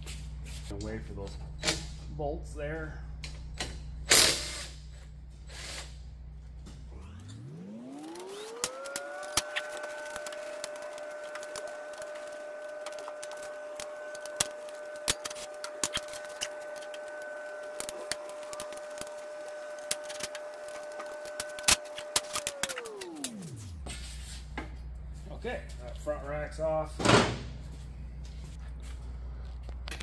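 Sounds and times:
power tool motor whine: 6.8s - 23.9s.

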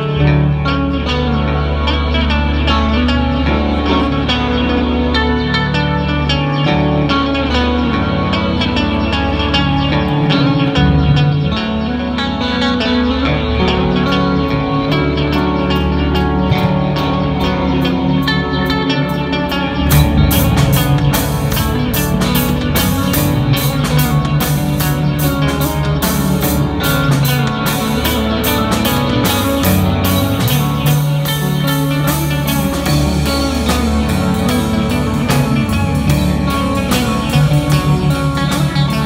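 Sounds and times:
rock band playing: 0.0s - 39.0s
drums and cymbals: 19.5s - 39.0s.

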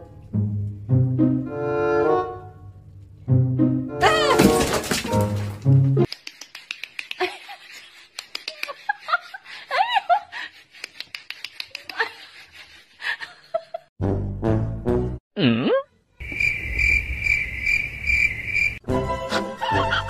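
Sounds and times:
people giggling and laughing: 7.0s - 13.9s, 19.4s - 20.0s.

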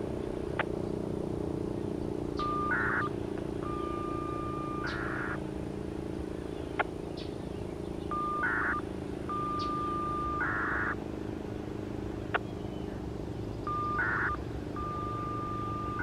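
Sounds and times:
electronic siren alert tone: 2.3s - 5.6s, 8.0s - 11.1s, 13.6s - 16.0s.

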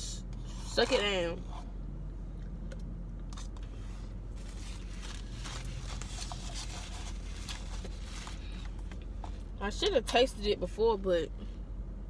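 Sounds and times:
steady low hum: 0.0s - 12.0s
plastic spoon scraping in cup: 0.4s - 1.6s, 3.3s - 8.4s
paper napkin rustling: 3.8s - 8.6s.

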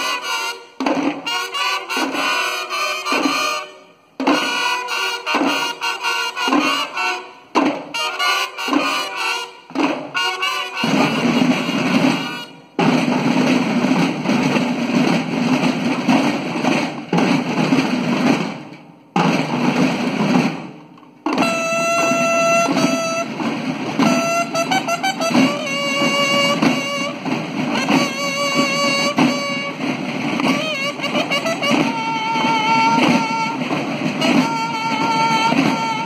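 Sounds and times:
bugles holding notes: 0.0s - 13.1s, 21.3s - 36.0s
snare drums in unison: 0.0s - 36.0s.

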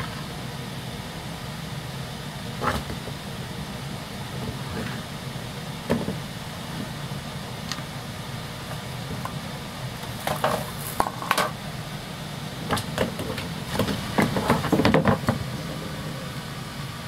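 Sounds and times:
knocks and thumps on wood: 5.9s - 6.2s, 12.7s - 15.4s.

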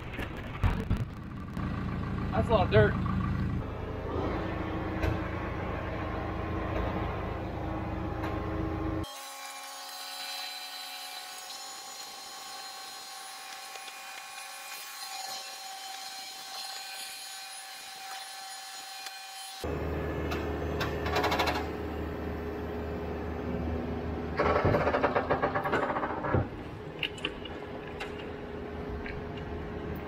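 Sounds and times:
diesel engine rumbling: 0.0s - 9.0s, 19.7s - 30.0s.

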